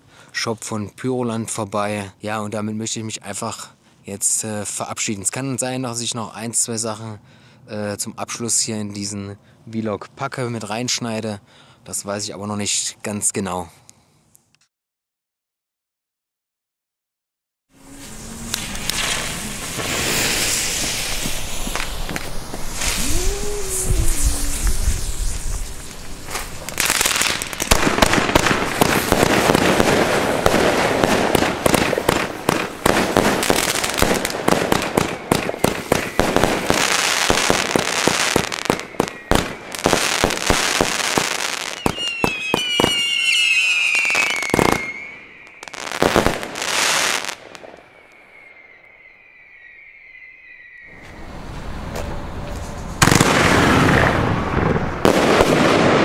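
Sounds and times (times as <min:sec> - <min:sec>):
falling firework whistles: 0:17.8 - 0:56.0
firework shots and bursts: 0:18.0 - 0:47.9, 0:53.0 - 0:56.0.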